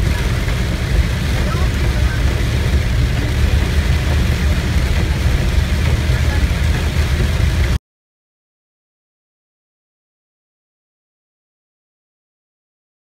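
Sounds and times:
engine and road rumble: 0:00.0 - 0:07.8
rain hissing on windshield: 0:00.0 - 0:07.8.

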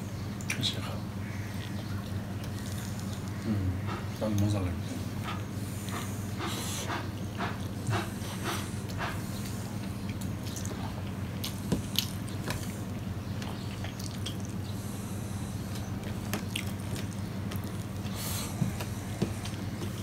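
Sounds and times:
steady low hum: 0:00.0 - 0:20.0
chewing: 0:01.4 - 0:20.0.

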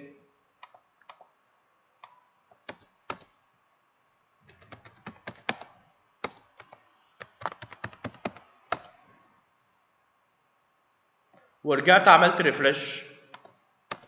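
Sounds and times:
mouse clicks: 0:00.6 - 0:01.3
keyboard typing: 0:02.0 - 0:03.3, 0:04.5 - 0:09.0, 0:13.3 - 0:14.0.

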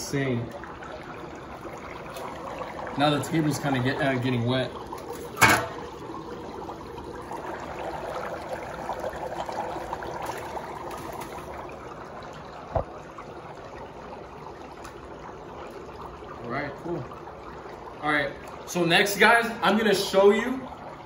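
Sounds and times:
dry ice bubbling in water: 0:00.0 - 0:21.0.

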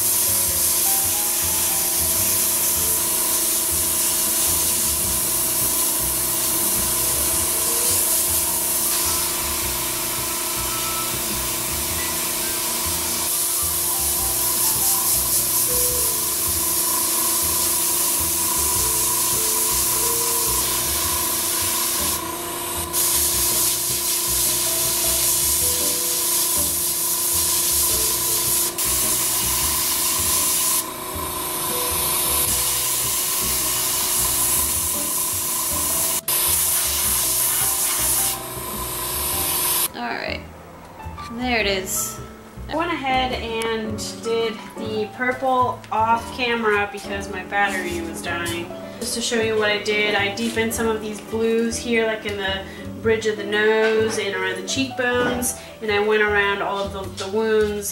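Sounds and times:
airbrush hissing: 0:00.0 - 0:39.9.

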